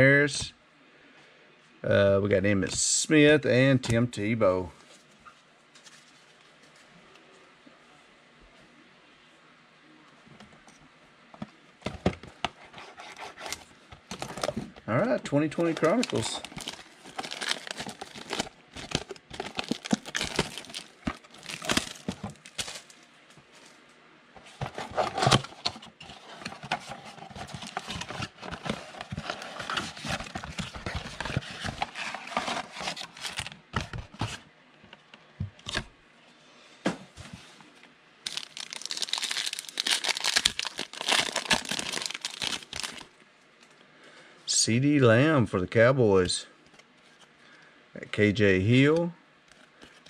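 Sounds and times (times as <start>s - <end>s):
packaging crackling and rustling: 11.9s - 23.0s, 24.4s - 34.4s, 38.2s - 43.1s
foil pack crinkled and torn: 15.6s - 23.0s, 38.2s - 43.1s.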